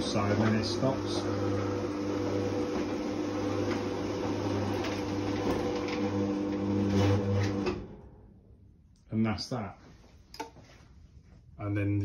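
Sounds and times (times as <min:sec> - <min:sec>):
garage door motor humming: 0:00.0 - 0:08.2.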